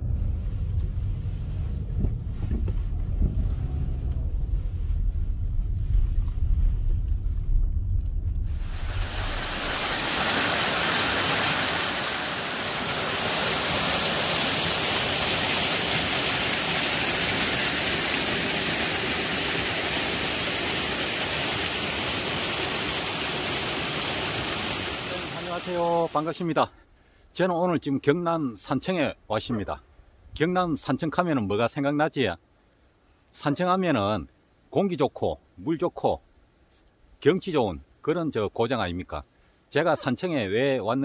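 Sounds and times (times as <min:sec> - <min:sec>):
car driving rumble: 0:00.0 - 0:09.7
stream rushing over rocks: 0:08.5 - 0:26.6.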